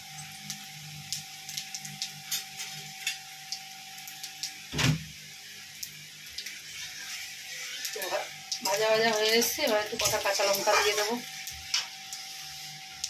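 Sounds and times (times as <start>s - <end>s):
spices sizzling in hot oil: 0.0s - 13.0s
thump: 4.8s - 5.0s.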